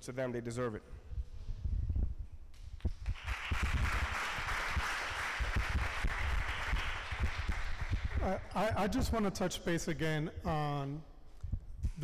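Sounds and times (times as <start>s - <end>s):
audience applauding: 3.1s - 8.4s.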